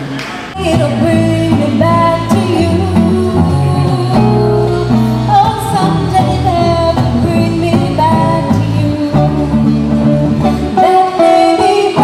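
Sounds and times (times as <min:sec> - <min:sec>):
acoustic guitar: 0:00.0 - 0:12.0
woman singing pop song: 0:00.6 - 0:12.0.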